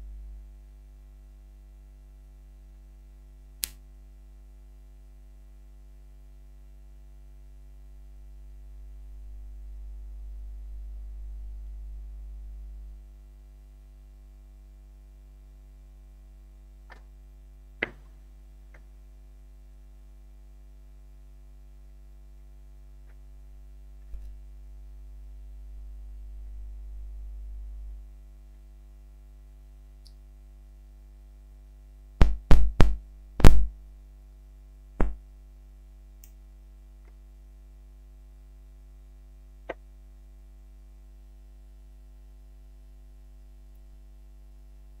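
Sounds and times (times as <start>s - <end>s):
electrical hum: 0.0s - 45.0s
sharp click: 3.6s - 3.8s.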